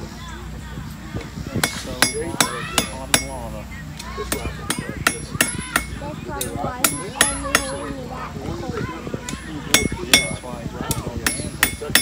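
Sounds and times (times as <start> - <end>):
hammer striking metal on anvil: 1.6 - 3.4, 4.3 - 7.8, 9.7 - 12.0.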